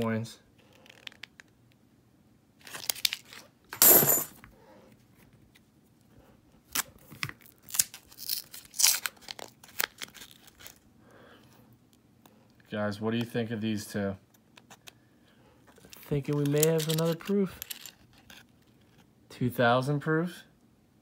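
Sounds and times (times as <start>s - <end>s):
paper wrapper tearing: 2.6s - 3.5s, 6.7s - 10.8s.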